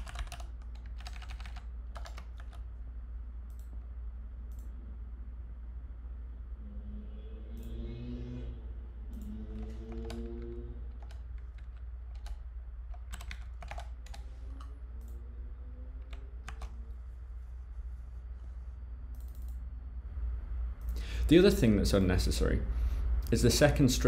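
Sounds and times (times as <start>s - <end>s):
computer keyboard typing: 0.0s - 2.7s, 9.2s - 15.2s, 16.0s - 16.8s
steady low hum: 0.0s - 24.0s.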